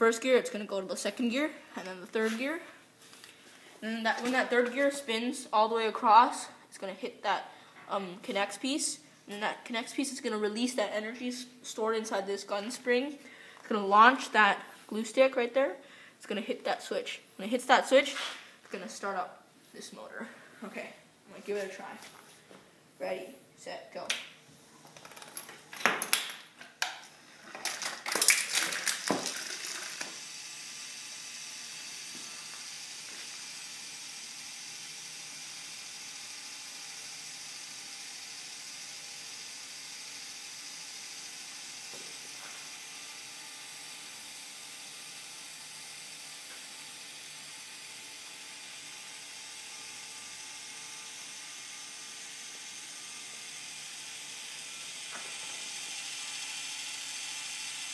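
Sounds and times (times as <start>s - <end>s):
coin rattling down a tube: 27.6s - 30.0s
small electric fan hissing: 28.8s - 57.9s.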